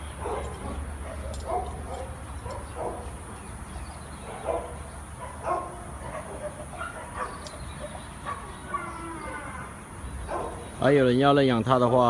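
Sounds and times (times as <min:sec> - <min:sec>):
dog barking: 0:00.2 - 0:03.1, 0:04.3 - 0:09.0, 0:10.3 - 0:10.6.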